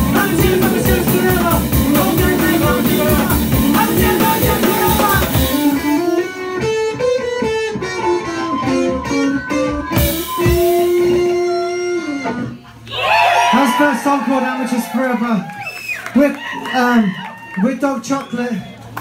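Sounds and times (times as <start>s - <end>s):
picked guitar notes: 0.0s - 12.8s
live punk band playing: 0.0s - 13.6s.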